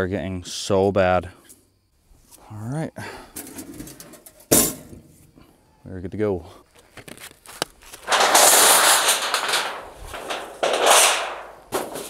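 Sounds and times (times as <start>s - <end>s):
metal sheet rattling and crackling: 8.0s - 12.0s.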